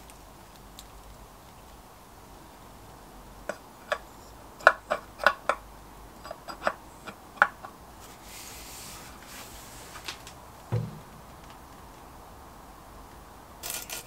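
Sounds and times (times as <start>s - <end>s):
faint soft hiss: 8.0s - 13.3s.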